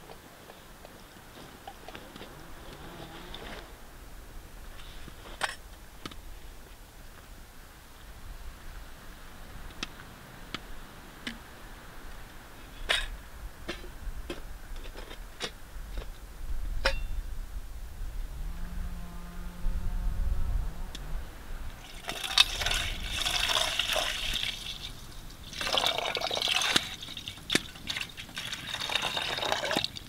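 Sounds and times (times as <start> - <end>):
low rumble: 16.5 - 24.2.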